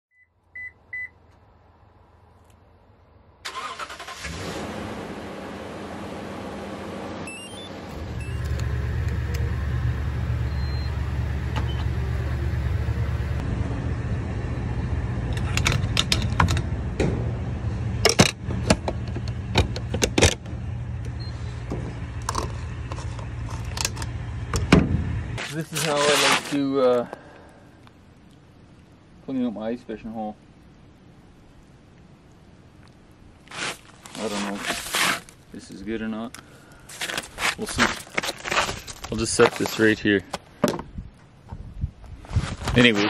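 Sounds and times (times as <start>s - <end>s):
vehicle engine starting and running: 3.4s - 25.5s
sharp clicks and knocks: 15.3s - 17.2s, 18.0s - 25.0s.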